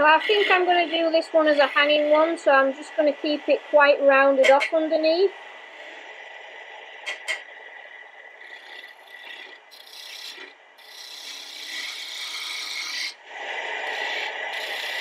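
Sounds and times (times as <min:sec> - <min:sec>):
wood lathe running: 0:00.0 - 0:02.4, 0:08.4 - 0:15.0
gouge scraping spinning wood: 0:00.0 - 0:02.5, 0:08.4 - 0:15.0.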